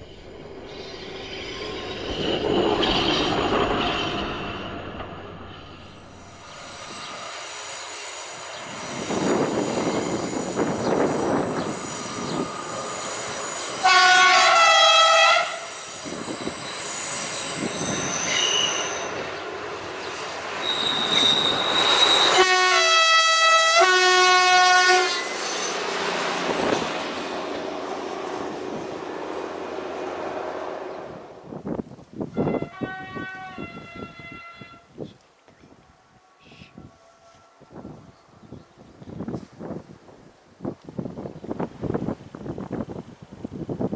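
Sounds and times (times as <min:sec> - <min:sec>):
train running on the line: 0:00.0 - 0:35.0
train two-tone horn: 0:13.7 - 0:15.8, 0:20.6 - 0:25.4, 0:32.3 - 0:35.0, 0:35.8 - 0:38.2.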